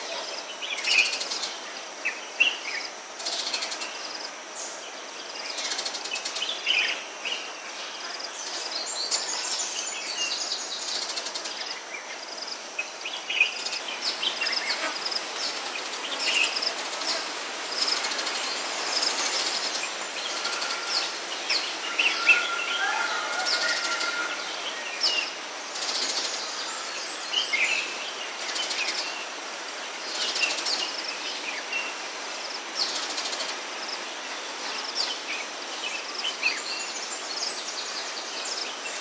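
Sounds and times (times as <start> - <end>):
steady high hiss: 0.0 - 39.0
birds chirping and calling: 17.8 - 26.8.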